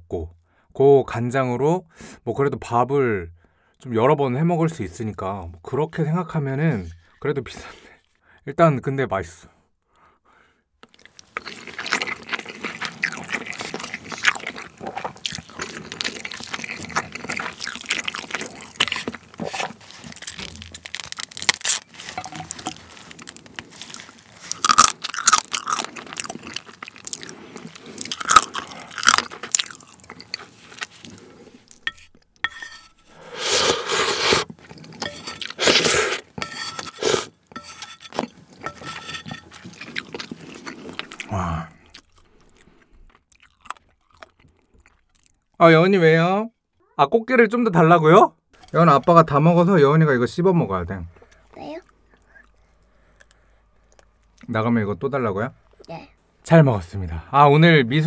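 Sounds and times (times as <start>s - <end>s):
sucking crab meat from shell: 10.8s - 32.1s, 33.0s - 42.8s
wet chewing and crunching: 10.8s - 33.0s, 33.8s - 45.6s, 51.2s - 54.6s.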